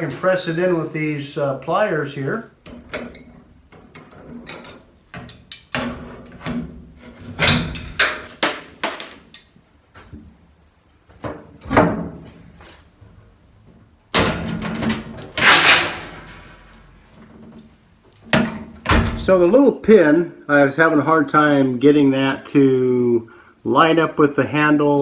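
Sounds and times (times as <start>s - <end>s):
metallic clicks and clanks: 7.3s - 9.5s, 14.1s - 16.8s.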